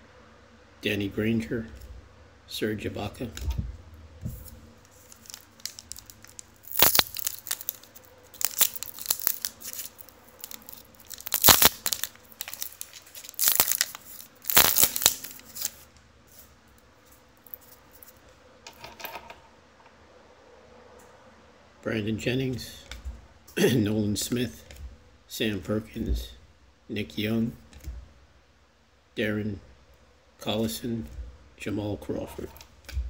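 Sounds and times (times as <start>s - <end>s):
cards handling: 3.2s - 16.4s
plastic wrapper tearing and crinkling: 4.3s - 15.9s.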